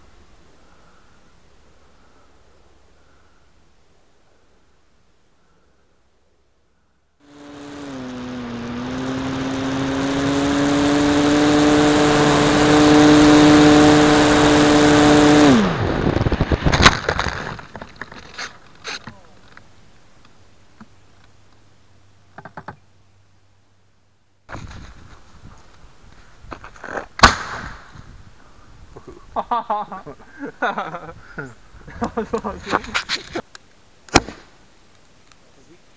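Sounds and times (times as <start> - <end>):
model plane motor tone: 7.2 - 15.8
rushing wind: 7.3 - 18.4, 27.5 - 29.4
plane crashing into branches: 15.5 - 18.3.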